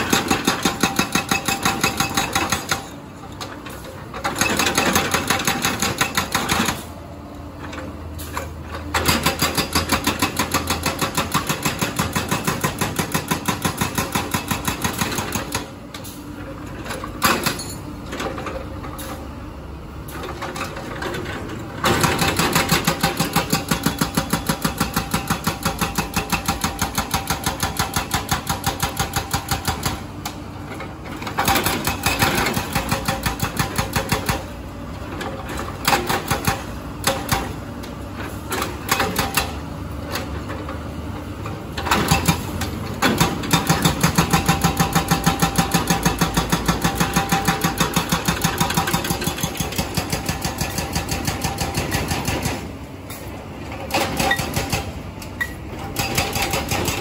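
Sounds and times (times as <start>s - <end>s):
hydraulic breaker hammering concrete: 0.0s - 3.0s, 4.2s - 6.9s, 8.9s - 15.8s, 21.8s - 30.2s, 31.2s - 34.6s, 35.8s - 37.6s, 38.5s - 39.6s, 41.8s - 52.8s, 53.9s - 55.0s, 55.8s - 57.0s.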